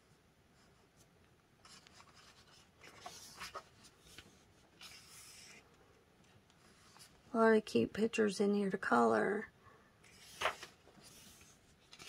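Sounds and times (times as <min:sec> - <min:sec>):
paper page turning: 0:01.6 - 0:05.6, 0:10.1 - 0:12.0.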